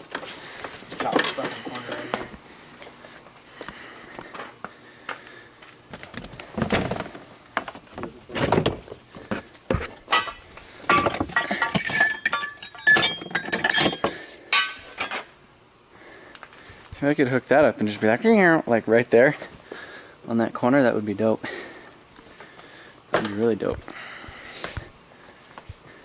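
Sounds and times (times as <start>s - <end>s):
knocks and clinks: 10.1s - 15.3s.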